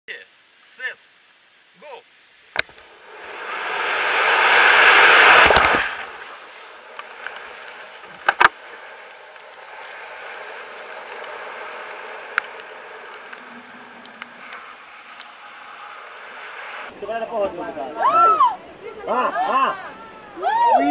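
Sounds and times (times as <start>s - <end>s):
soft steady wind: 0.1s - 20.9s
wind rushing over microphone: 2.6s - 17.1s.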